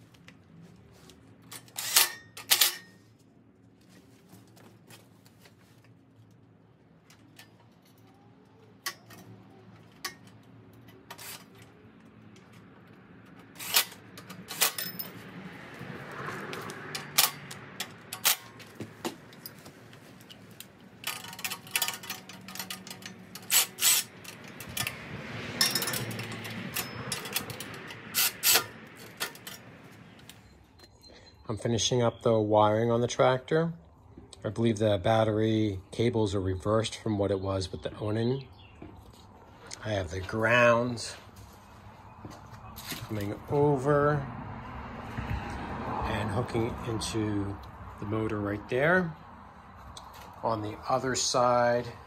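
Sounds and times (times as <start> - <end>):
tools clanking on metal: 1.5 - 3.0, 13.3 - 15.3, 16.9 - 29.8.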